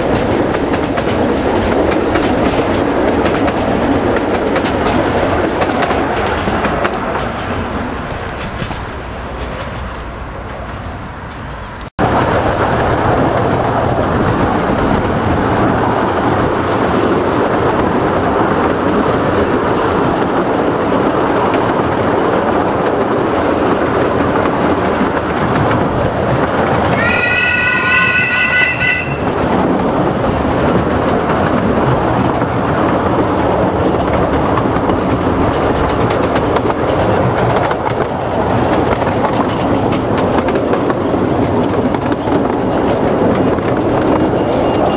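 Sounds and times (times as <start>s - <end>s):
miniature train running noise: 26.8s - 29.7s
locomotive warning whistle blast: 27.0s - 29.3s.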